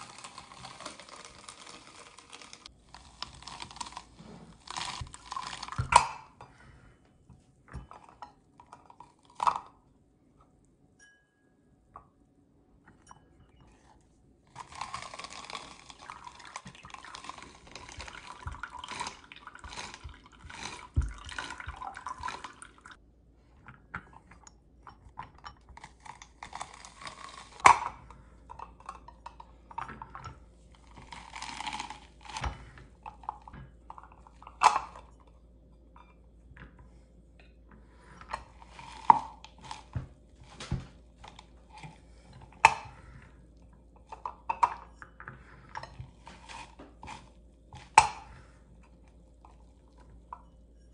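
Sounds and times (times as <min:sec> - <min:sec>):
juice squishing and spattering: 0:00.0 - 0:06.4, 0:14.5 - 0:23.0.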